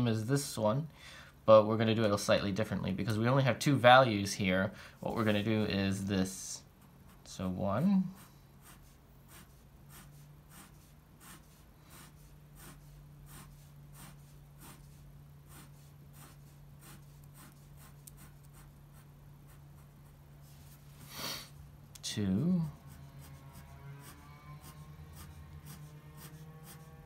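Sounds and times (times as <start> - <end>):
pen scratching on paper: 8.1 - 20.8, 22.6 - 27.0.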